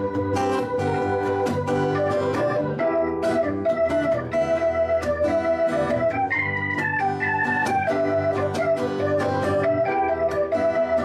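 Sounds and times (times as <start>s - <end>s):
acoustic guitar strumming: 0.0s - 11.0s
organ holding sustained chords: 0.0s - 11.0s.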